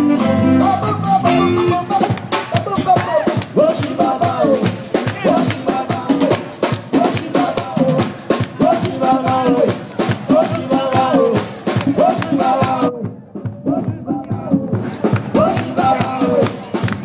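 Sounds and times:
saxophone: 0.0 - 2.1
guitar: 0.0 - 13.0
drum kit beat: 0.0 - 17.0
live band playing: 0.0 - 17.0.

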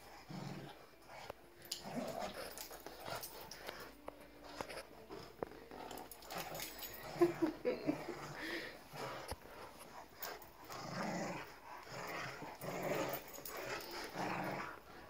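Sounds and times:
dogs play growling: 0.0 - 15.0
dogs scuffling: 1.0 - 7.7.

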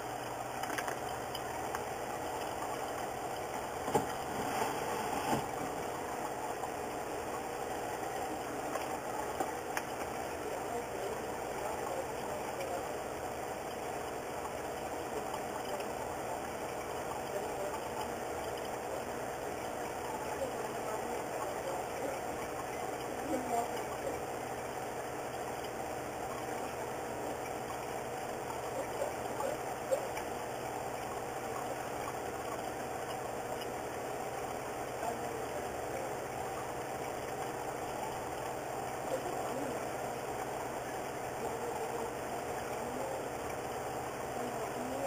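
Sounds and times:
steady mechanical drone: 0.0 - 45.0
faint ticks: 11.2 - 44.9.

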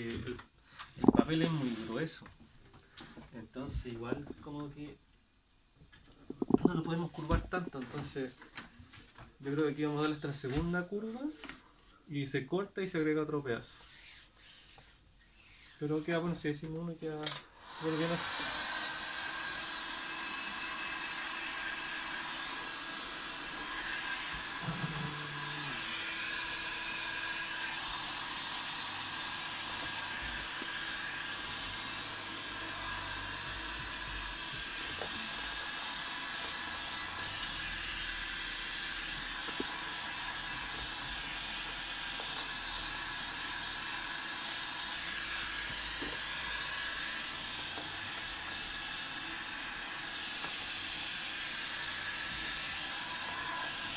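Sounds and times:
heat gun blowing air: 6.3 - 6.8, 17.5 - 53.9.

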